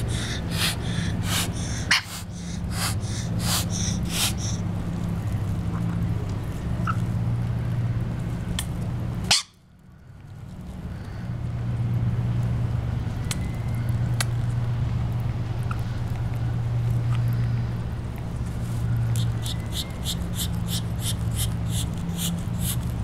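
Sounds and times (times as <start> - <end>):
bird hissing: 0.0 - 4.8, 19.0 - 23.0
beaks pecking at seed: 0.0 - 7.0, 18.5 - 23.0
steady low hum: 0.0 - 23.0.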